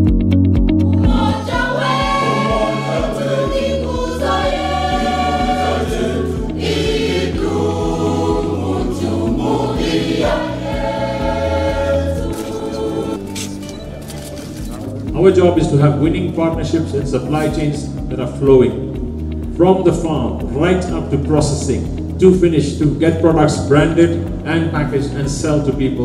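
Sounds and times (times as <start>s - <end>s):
pulsing bass: 0.0s - 26.0s
sung voices in long phrases: 0.9s - 13.2s.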